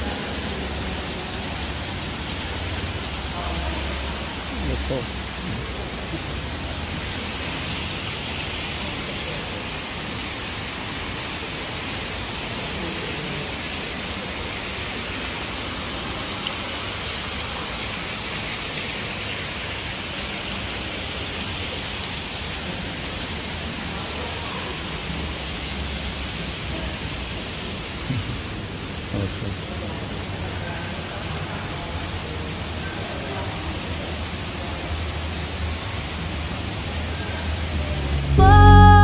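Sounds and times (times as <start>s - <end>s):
fountain water splashing into pool: 0.0s - 38.3s.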